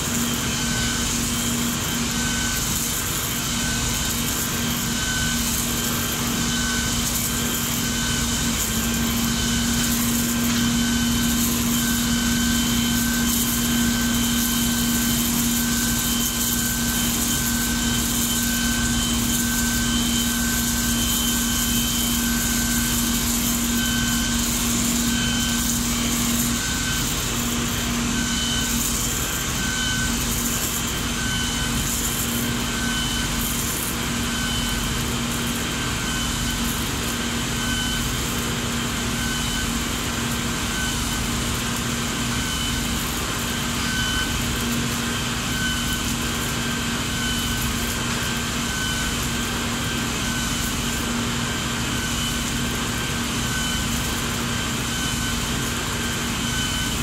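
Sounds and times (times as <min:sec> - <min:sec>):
electronic warning beep: 0:00.1 - 0:57.0.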